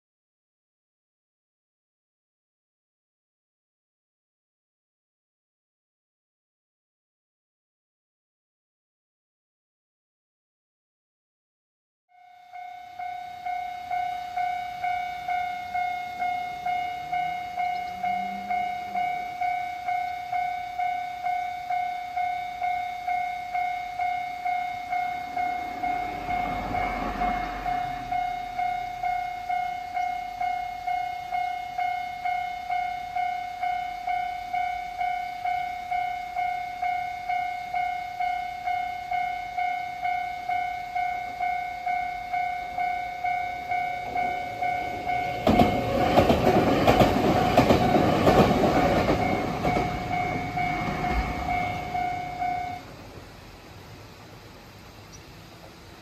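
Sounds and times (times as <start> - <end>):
level crossing alarm bell: 12.1 - 52.9
broad noise swell: 13.0 - 56.0.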